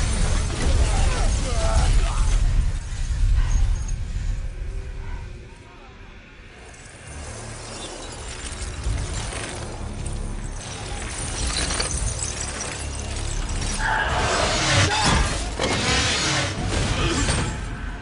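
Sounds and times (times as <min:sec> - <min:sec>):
music: 0:00.0 - 0:18.0
glass shattering and crashing: 0:07.2 - 0:13.9.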